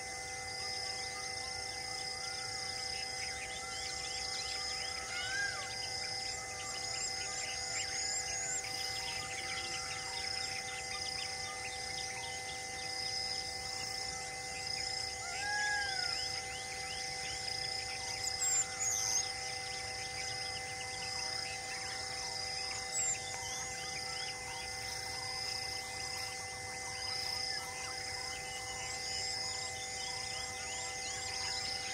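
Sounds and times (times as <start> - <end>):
insects buzzing: 0.0 - 31.9
whistled bird calls: 14.6 - 25.4.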